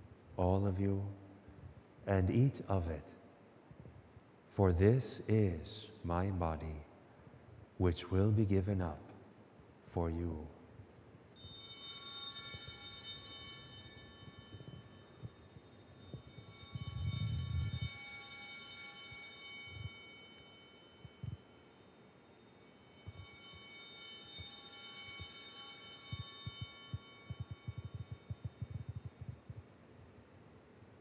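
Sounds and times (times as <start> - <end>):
altar bells ringing: 11.1 - 30.4.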